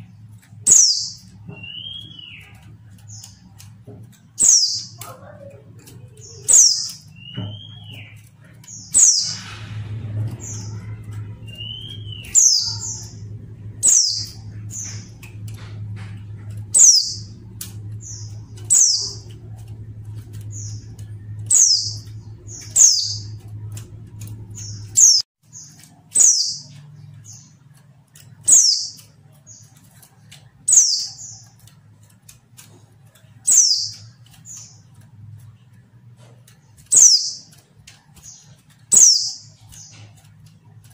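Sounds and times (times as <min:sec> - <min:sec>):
bird calling: 0:00.0 - 0:27.6
low hum: 0:00.0 - 0:40.9.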